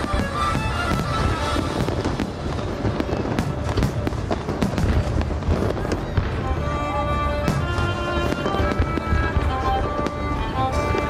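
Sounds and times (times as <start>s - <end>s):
fireworks bangs and crackles: 0.0s - 11.0s
music playing: 0.0s - 11.0s.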